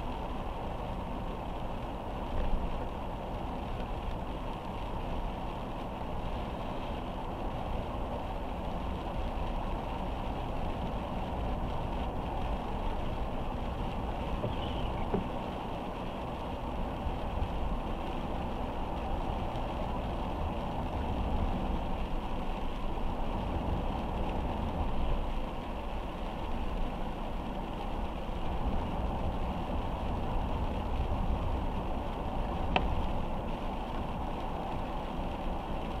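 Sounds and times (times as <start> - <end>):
rain hissing: 0.0 - 36.0
road and engine rumble: 0.0 - 36.0.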